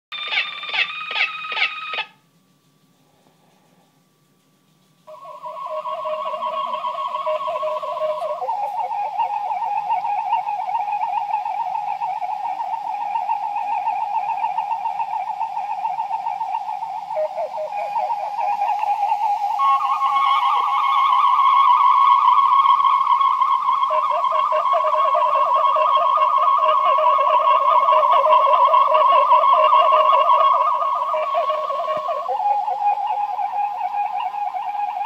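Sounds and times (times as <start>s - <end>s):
warbling electronic sci-fi tone: 0.1s - 2.2s, 15.4s - 35.0s.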